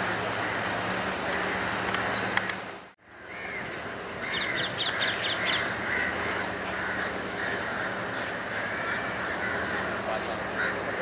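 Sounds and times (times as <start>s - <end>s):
crows cawing: 3.0s - 11.0s.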